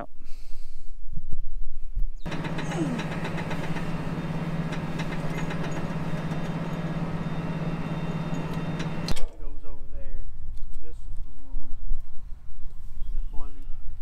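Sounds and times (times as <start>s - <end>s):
tractor engine drone: 2.3s - 9.3s.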